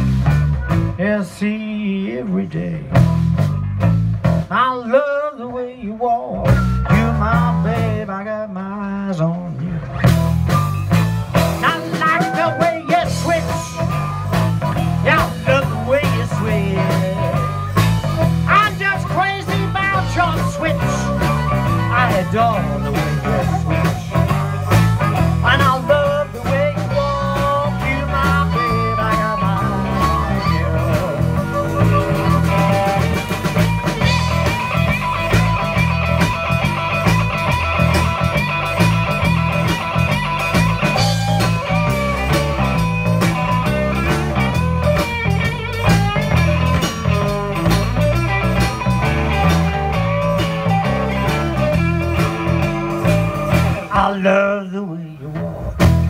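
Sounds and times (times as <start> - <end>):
drums in a shuffle: 0.0 - 56.0
electric guitars: 0.0 - 56.0
harmonica solo: 16.7 - 25.7, 26.5 - 53.8.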